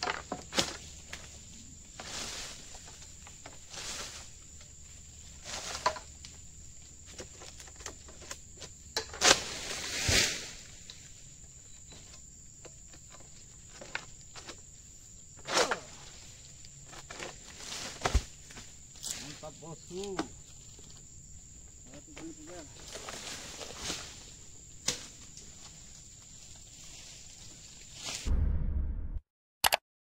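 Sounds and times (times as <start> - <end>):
rustling scraping strokes: 2.0 - 4.4
heavy thud: 28.3 - 29.2.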